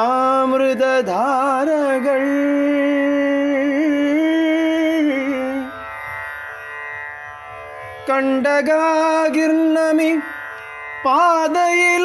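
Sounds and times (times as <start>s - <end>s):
person singing a wavering note: 0.0s - 5.9s.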